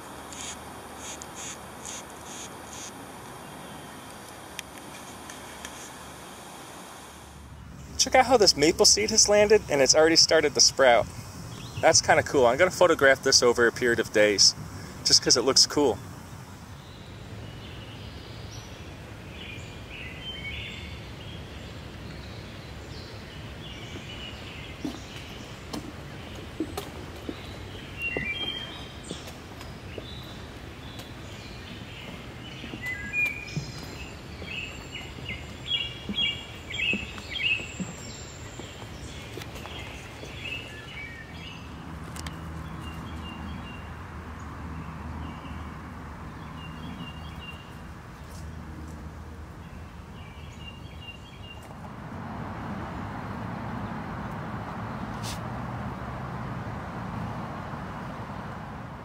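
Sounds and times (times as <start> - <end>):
low background noise: 0.0 - 59.0
small birds chirping: 7.4 - 51.8.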